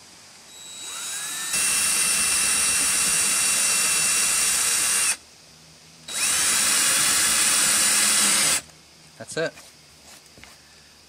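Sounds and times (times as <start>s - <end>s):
cordless drill boring: 0.5s - 5.2s, 6.1s - 8.6s.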